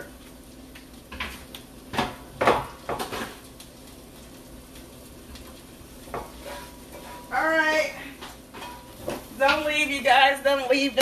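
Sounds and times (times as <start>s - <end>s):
pans and utensils clinking: 1.1s - 3.5s, 6.1s - 7.4s, 8.1s - 9.7s.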